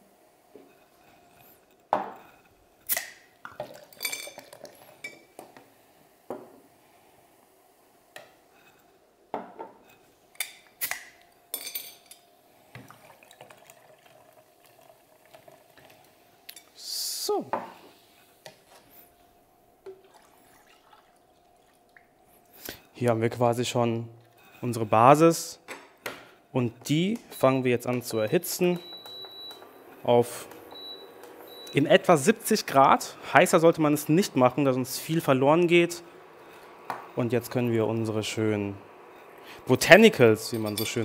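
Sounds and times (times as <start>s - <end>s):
glass bottles clinking: 3.5s - 5.2s, 40.5s - 41.0s.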